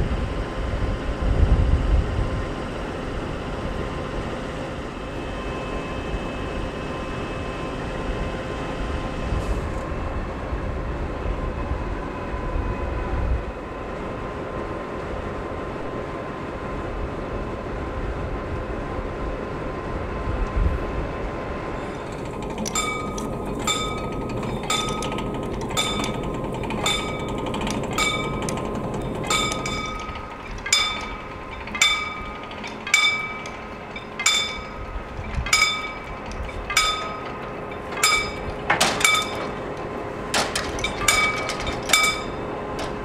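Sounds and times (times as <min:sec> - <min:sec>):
metallic clank: 0:21.8 - 0:43.0
level crossing bell ringing: 0:22.5 - 0:39.8.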